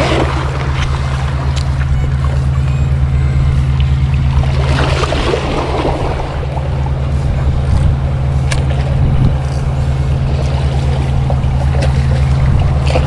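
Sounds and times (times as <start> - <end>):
fish splashing in water: 0.0 - 13.0
steady low drone: 0.0 - 13.0.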